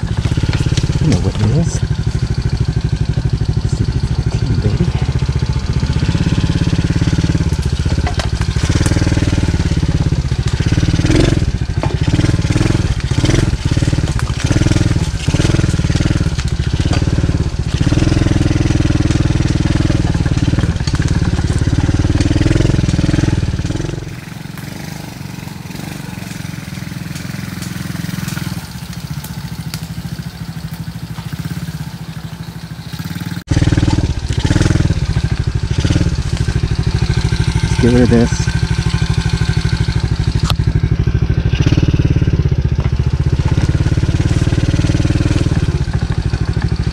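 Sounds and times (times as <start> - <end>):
knocks and rattles: 0.0 - 2.9, 5.9 - 24.9
dirt bike engine revving: 0.0 - 46.9.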